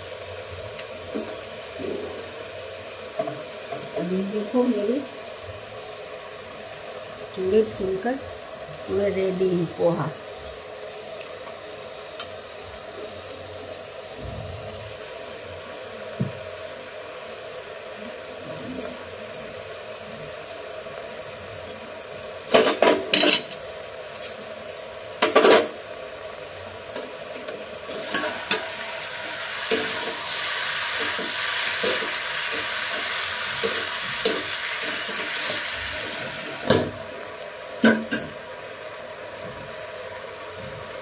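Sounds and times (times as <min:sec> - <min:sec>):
gas burner running: 0:00.0 - 0:41.0
vegetables sizzling in pan: 0:00.0 - 0:41.0
lid and spatula clanking on pan: 0:37.8 - 0:38.4.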